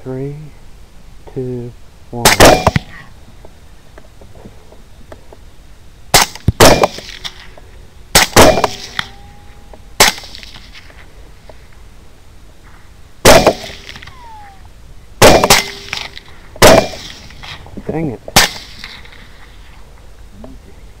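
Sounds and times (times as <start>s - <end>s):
rifle shots: 6.1s - 7.4s, 8.1s - 9.1s, 10.0s - 10.8s, 13.2s - 14.1s, 15.2s - 17.6s, 18.3s - 19.0s
bullet ricochet whine: 8.2s - 10.7s.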